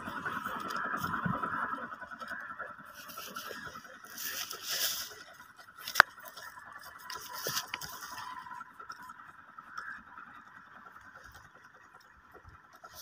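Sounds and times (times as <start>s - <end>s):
goat tearing grass: 2.2s - 8.6s.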